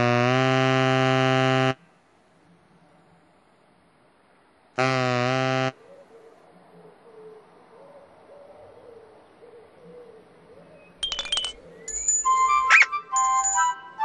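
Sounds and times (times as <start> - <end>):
faint wavering bird calls: 5.8 - 13.7
toucan hooting honk: 12.2 - 14.0.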